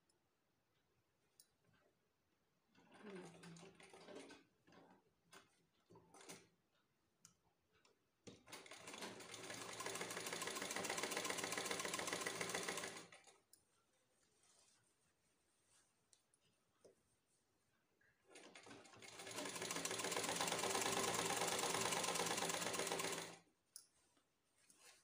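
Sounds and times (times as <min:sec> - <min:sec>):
sewing machine stitching: 0:02.8 - 0:06.5, 0:08.4 - 0:13.4, 0:18.3 - 0:23.5.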